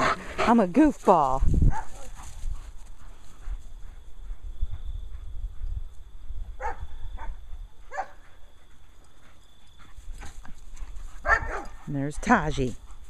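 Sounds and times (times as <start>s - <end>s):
dog barking: 1.7s - 2.1s, 6.6s - 8.2s, 11.2s - 11.8s.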